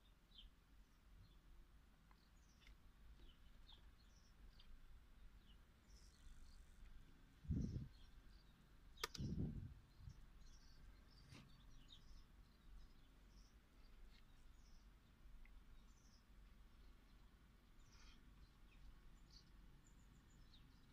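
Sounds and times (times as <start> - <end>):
faint bird chirps: 2.1 - 20.9
dull low thumps: 7.4 - 8.0, 9.1 - 10.2
sharp click: 9.0 - 9.4.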